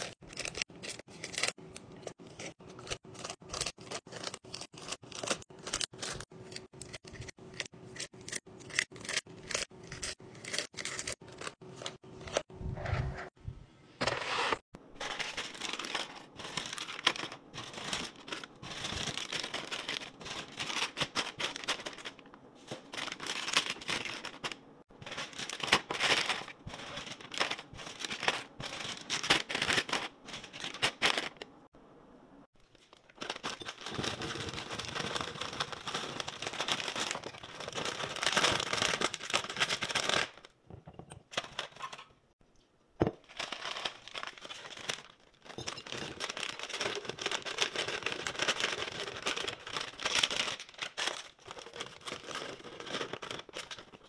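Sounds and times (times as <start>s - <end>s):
plastic wrappers crinkling: 15.0s - 31.5s, 32.6s - 40.5s, 43.2s - 54.0s.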